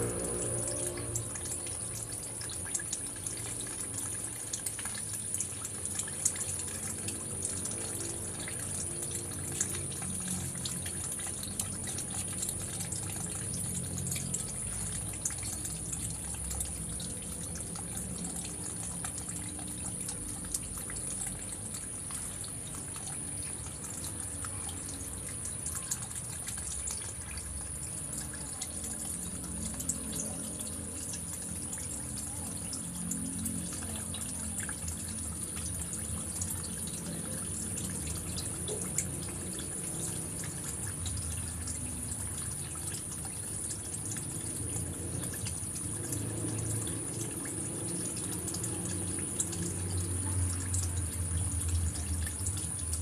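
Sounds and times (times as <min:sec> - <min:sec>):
running water: 0:00.0 - 0:53.0
thin high steady tone: 0:00.0 - 0:53.0.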